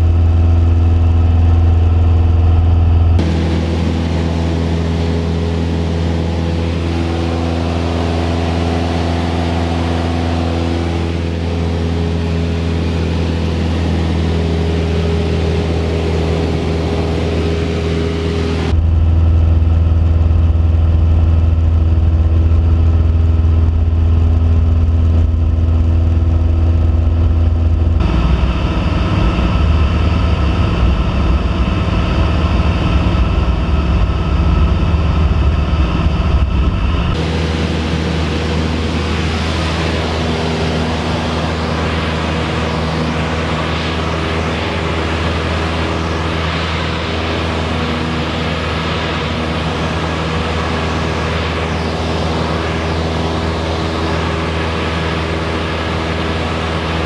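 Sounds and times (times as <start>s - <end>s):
airplane engine and propeller droning: 0.0s - 57.0s.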